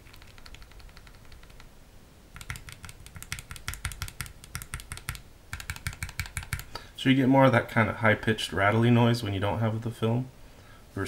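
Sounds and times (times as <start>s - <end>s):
keycaps rattling: 2.4s - 6.7s.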